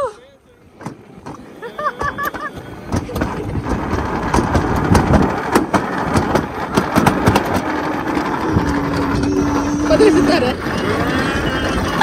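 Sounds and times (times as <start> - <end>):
coaster sled rushing rumble: 0.6 - 12.0.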